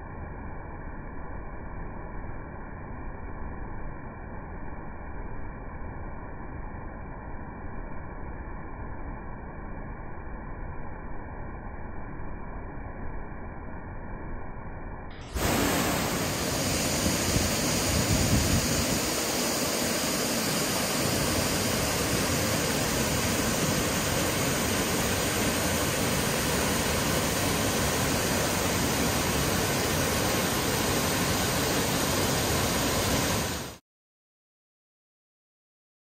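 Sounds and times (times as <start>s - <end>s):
waterfall rushing: 15.3s - 33.8s.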